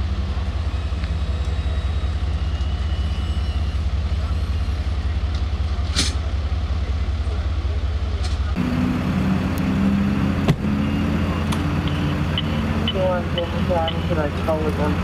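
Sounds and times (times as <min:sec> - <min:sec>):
ambulance engine idling: 0:10.8 - 0:15.0.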